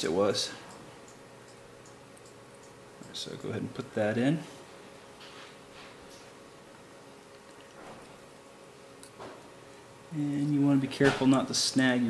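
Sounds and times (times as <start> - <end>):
faint hiss and hum: 0.0 - 12.0.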